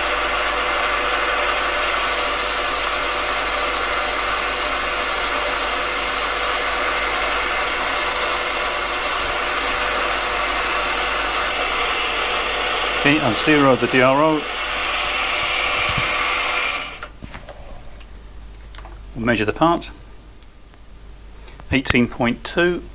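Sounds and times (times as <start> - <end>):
lathe whining: 0.0 - 17.1.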